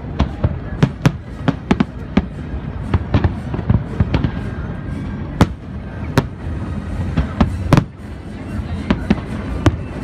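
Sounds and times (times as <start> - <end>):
fireworks bangs: 0.0 - 4.6, 5.3 - 8.2
low rumble of bursts: 0.0 - 10.0.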